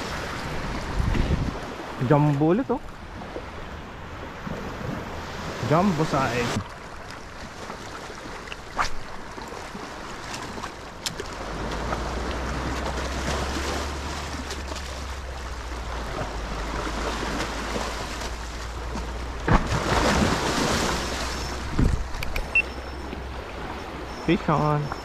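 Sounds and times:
wind rumbling on microphone: 0.0 - 2.2, 8.8 - 24.2
waves washing on shore: 0.0 - 25.0
sharp clicks: 22.1 - 22.7.

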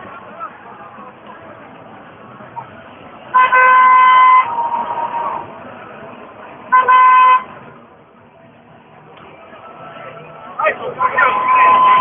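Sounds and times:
crowd noise: 0.0 - 12.0
loud horn blasts: 3.3 - 5.4, 6.7 - 7.6, 10.9 - 12.0.

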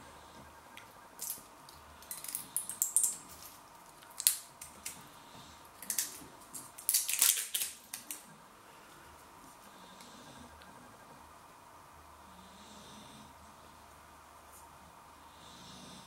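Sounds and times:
plastic cap crackling and clicking: 5.8 - 8.2.

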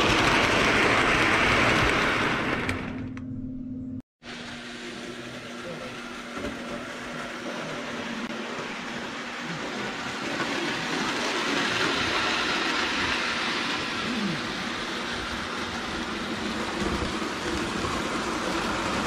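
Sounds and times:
model trains rumbling on track: 8.4 - 19.0.

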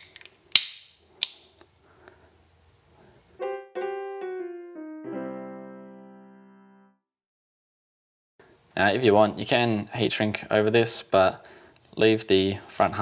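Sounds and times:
piano phrase: 3.4 - 7.1.

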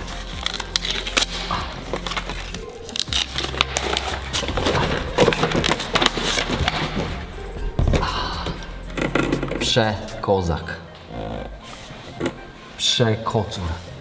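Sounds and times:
packaging rustling and crackling: 0.0 - 7.2.

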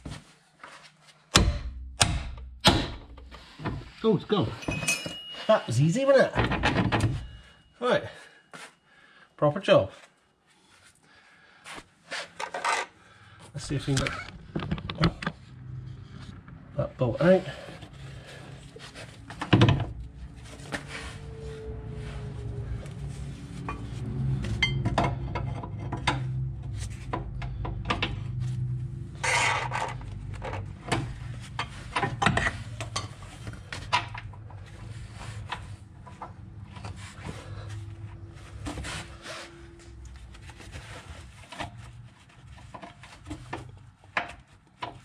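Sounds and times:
metallic tool clinks and scrapes: 4.4 - 6.4.

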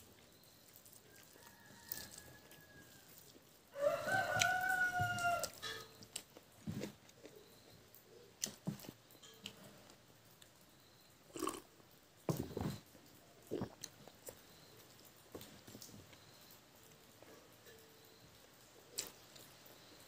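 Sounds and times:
soft chewing clicks: 0.0 - 20.0
rooster crowing: 1.1 - 5.9.

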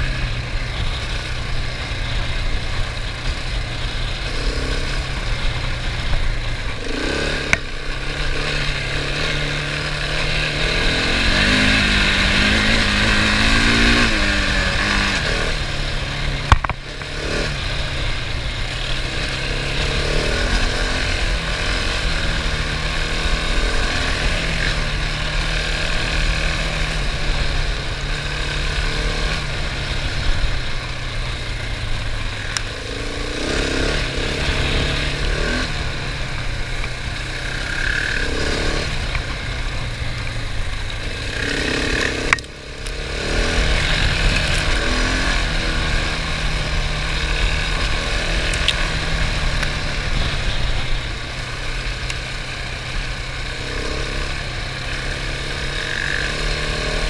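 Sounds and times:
motorcycle engine revving: 0.0 - 57.0
rushing wind: 0.0 - 57.0
sharp knock: 16.5 - 16.8.

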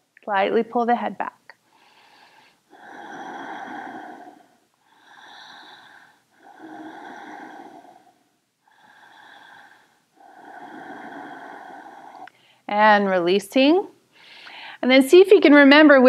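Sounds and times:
woman breathing deeply: 1.6 - 12.7, 14.1 - 14.8.

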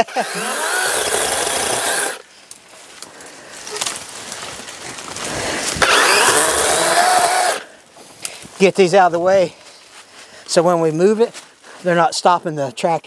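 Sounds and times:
chainsaw cutting brush: 0.0 - 2.3, 3.2 - 8.4.

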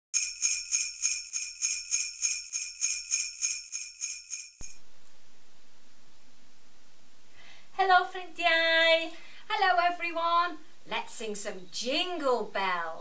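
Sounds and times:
jingle bells shaking: 0.2 - 4.8.

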